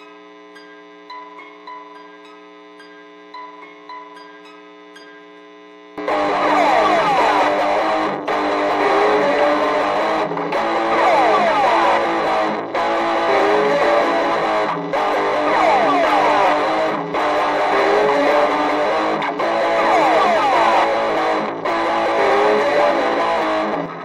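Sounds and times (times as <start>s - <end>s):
noise rock guitar with pitch slides: 6.0s - 24.0s.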